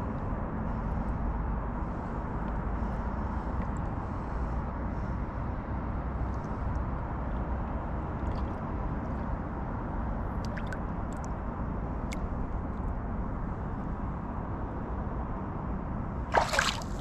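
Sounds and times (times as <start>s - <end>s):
steady low rumble: 0.0s - 17.0s
water drips and ticks: 10.3s - 11.3s
water sloshing: 10.4s - 11.2s, 16.3s - 17.0s.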